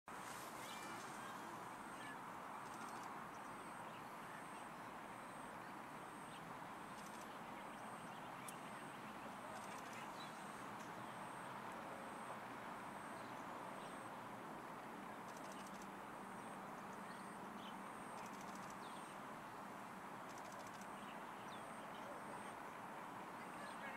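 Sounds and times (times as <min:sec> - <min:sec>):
faint high-pitched chirp: 0:00.6 - 0:11.5, 0:15.3 - 0:15.9, 0:16.8 - 0:19.2.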